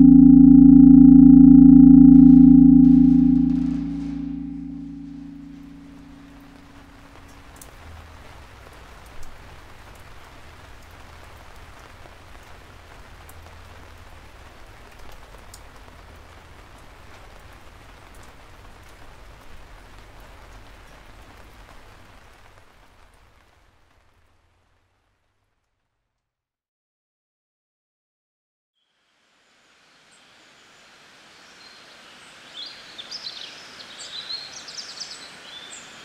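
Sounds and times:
low hum: 0.0s - 7.2s
rain-like hiss: 6.4s - 25.8s, 28.8s - 36.0s.

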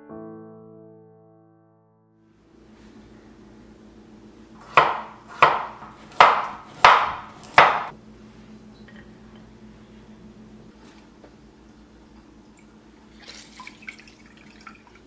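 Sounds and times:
knife chopping on wooden board: 4.6s - 7.9s.

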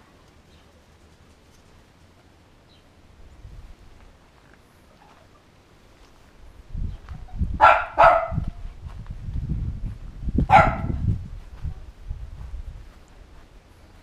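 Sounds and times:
low rumble: 8.4s - 14.0s.

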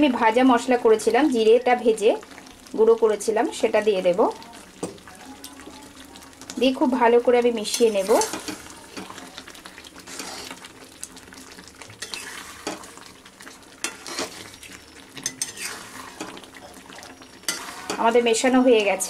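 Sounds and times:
metal spatula scraping a pan: 7.6s - 9.1s, 10.0s - 10.6s, 12.0s - 12.9s, 13.8s - 19.0s.

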